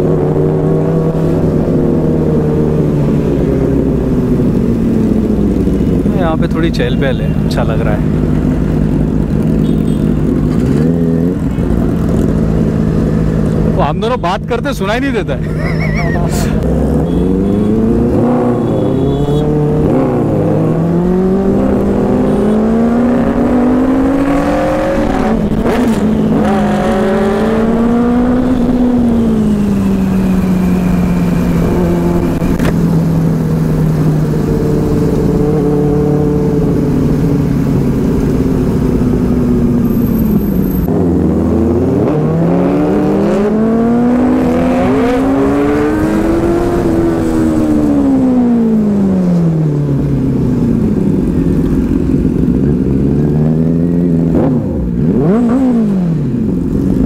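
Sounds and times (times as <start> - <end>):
motorcycle engine revving: 16.5 - 57.0.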